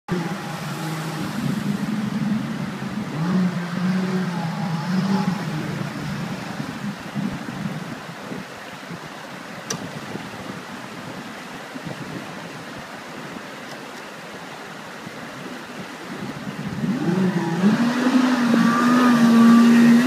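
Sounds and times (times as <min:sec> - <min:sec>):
boat engine running: 0:00.1 - 0:07.8, 0:16.4 - 0:20.0
rushing water: 0:00.1 - 0:20.0.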